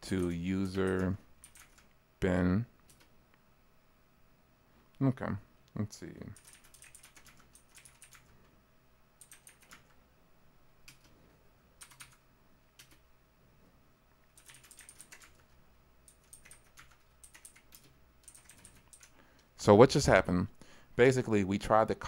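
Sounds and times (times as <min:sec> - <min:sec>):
faint keyboard typing: 0:00.0 - 0:02.0, 0:02.8 - 0:03.2, 0:06.2 - 0:08.5, 0:09.2 - 0:10.0, 0:10.8 - 0:11.2, 0:11.8 - 0:13.1, 0:14.2 - 0:19.5.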